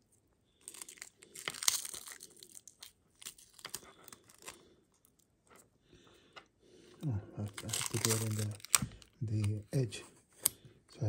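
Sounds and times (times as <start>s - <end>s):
adhesive tape crackling: 0.6s - 5.2s, 7.4s - 9.8s.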